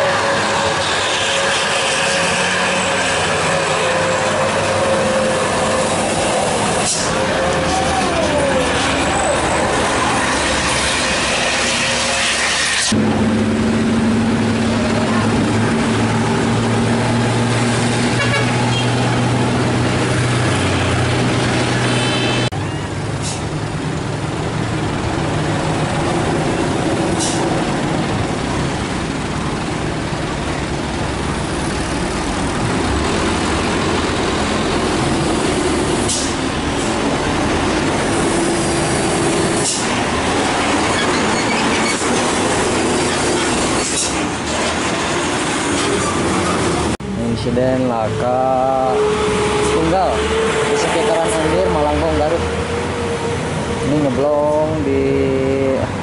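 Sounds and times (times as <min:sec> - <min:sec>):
heavy diesel trucks labouring: 0:00.0 - 0:56.0
air-brake hisses: 0:27.2 - 0:27.5, 0:36.0 - 0:36.9, 0:39.5 - 0:40.0.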